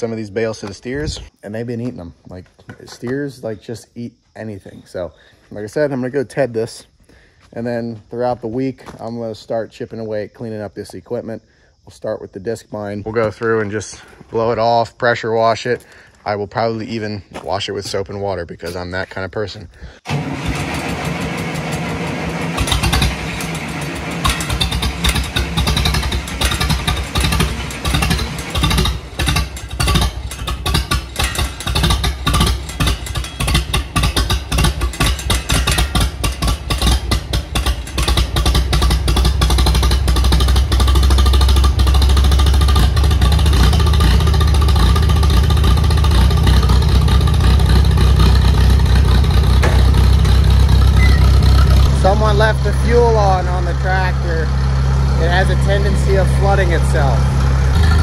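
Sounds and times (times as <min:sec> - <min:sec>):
tractor engine running: 0:20.0 - 0:58.0.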